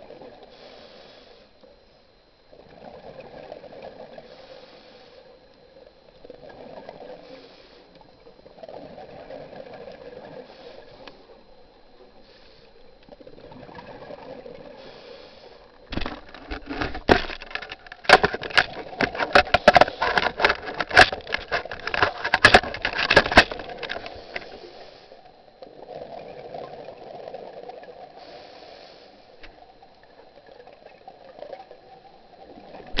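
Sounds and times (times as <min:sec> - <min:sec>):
regulator breathing hiss: 0:00.5 - 0:01.6, 0:04.2 - 0:05.3, 0:07.2 - 0:07.9, 0:10.5 - 0:11.3, 0:12.2 - 0:12.8, 0:14.8 - 0:15.7, 0:24.1 - 0:25.3, 0:28.2 - 0:29.4
exhaled bubbles crackling: 0:05.8 - 0:07.4, 0:08.0 - 0:28.4, 0:29.5 - 0:33.0.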